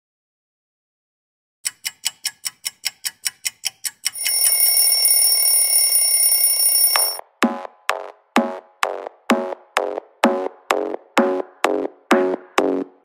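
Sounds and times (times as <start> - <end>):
fast clock-like ticking: 1.6 - 7.2
alarm bell ringing: 4.2 - 7.2.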